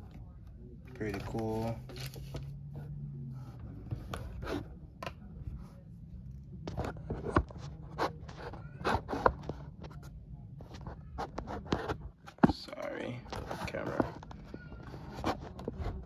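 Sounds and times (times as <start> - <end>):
handling clicks taps and scrapes: 0.0 - 2.5, 6.6 - 16.0.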